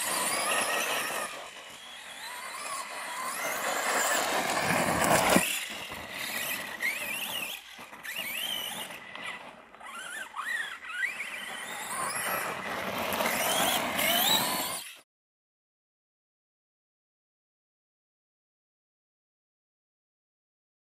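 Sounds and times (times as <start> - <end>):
electric motor whining: 0.0 - 15.0.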